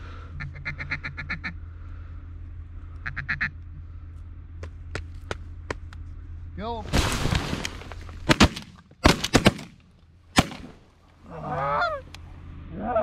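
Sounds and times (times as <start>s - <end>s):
duck quacking: 0.4s - 1.6s, 2.9s - 3.6s, 11.3s - 12.1s.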